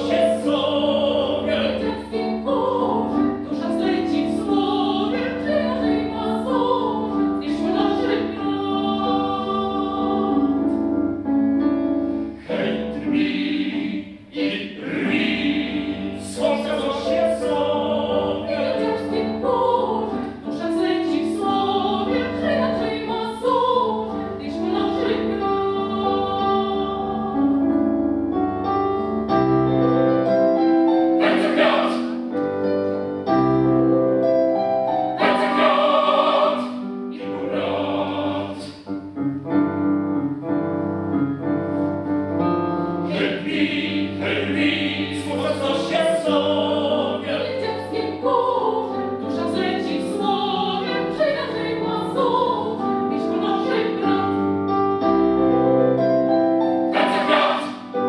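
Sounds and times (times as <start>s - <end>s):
choir singing sustained chords: 0.0s - 11.0s, 12.1s - 28.0s, 31.0s - 32.4s, 35.1s - 38.9s, 43.0s - 54.8s, 56.8s - 58.0s
piano accompaniment: 0.0s - 58.0s.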